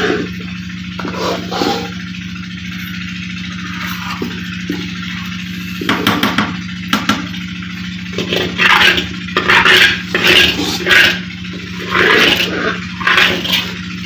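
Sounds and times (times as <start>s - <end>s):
steady low hum: 0.0s - 14.0s
ladle scraping metal wok: 1.0s - 2.0s, 8.2s - 13.8s.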